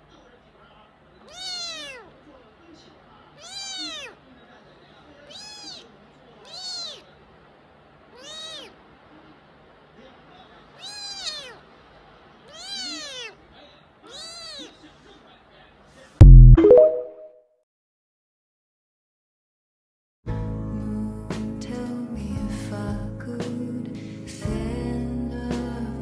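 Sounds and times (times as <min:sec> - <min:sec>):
kitten meowing: 0:01.3 - 0:02.0, 0:03.4 - 0:04.2, 0:05.2 - 0:07.0, 0:08.1 - 0:08.8, 0:10.8 - 0:11.6, 0:12.5 - 0:13.4, 0:14.1 - 0:14.7.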